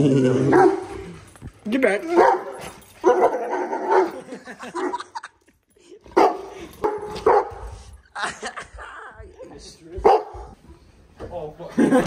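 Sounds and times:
dog barking: 0:00.5 - 0:00.9, 0:02.1 - 0:05.0, 0:06.2 - 0:07.7, 0:10.0 - 0:10.6.

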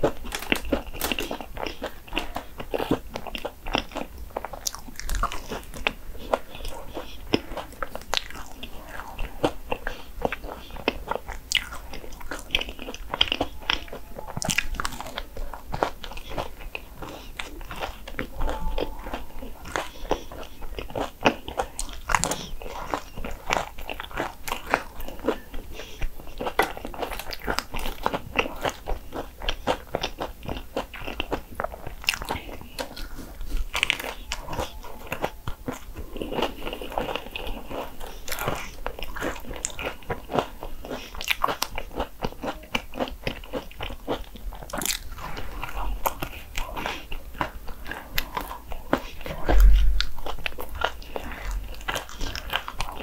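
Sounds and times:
crunchy chewing of waffle: 0:00.0 - 0:53.0
low thump: 0:49.5 - 0:50.2.

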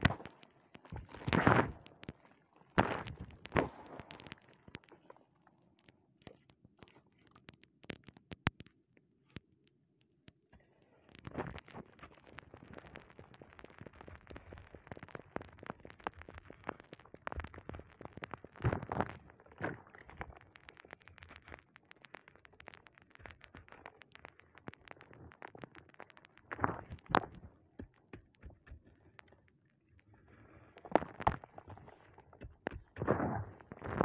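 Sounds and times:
crumbly block crunching: 0:00.0 - 0:08.7, 0:10.5 - 0:34.0.

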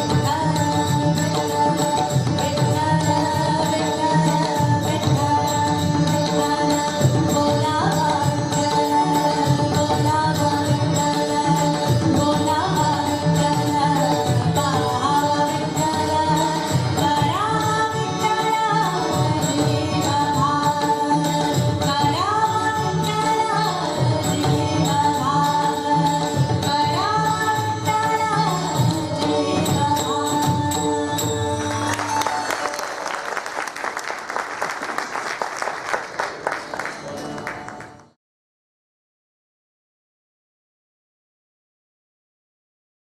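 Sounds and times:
woman singing: 0:00.0 - 0:32.1
hand drums: 0:00.0 - 0:33.8
harmonium: 0:00.0 - 0:34.3
audience applause: 0:31.7 - 0:38.1.

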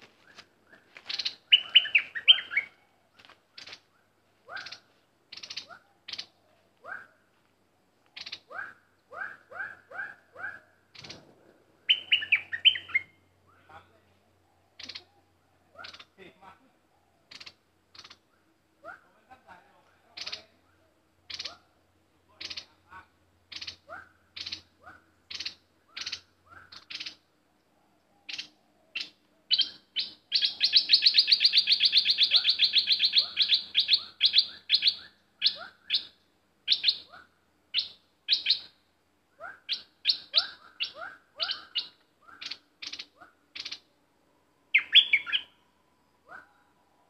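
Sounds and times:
bird calling in sharp notes: 0:01.1 - 0:02.8, 0:11.9 - 0:13.3, 0:28.3 - 0:37.2, 0:44.8 - 0:45.6.

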